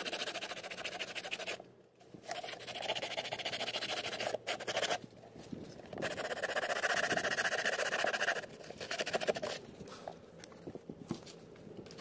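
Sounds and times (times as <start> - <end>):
hand tool scraping fiberglass: 0.0 - 1.6, 6.0 - 9.6.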